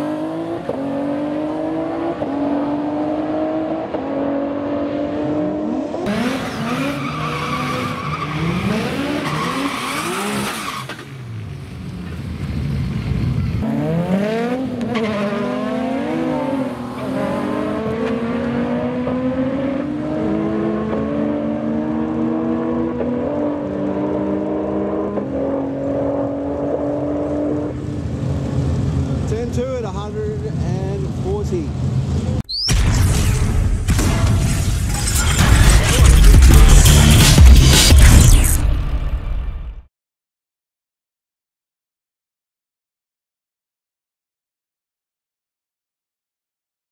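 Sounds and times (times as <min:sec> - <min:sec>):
engine revving at full throttle: 0:00.0 - 0:07.0, 0:08.4 - 0:10.5, 0:13.6 - 0:27.7
tyre squeal: 0:06.4 - 0:11.1.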